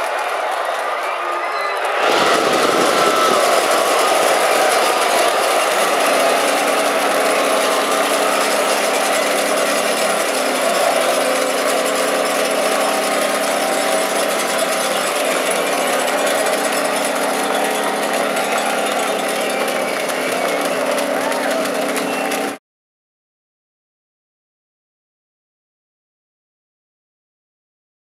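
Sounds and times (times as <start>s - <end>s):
arena crowd cheering: 0.0s - 22.6s
goal horn: 1.9s - 20.7s.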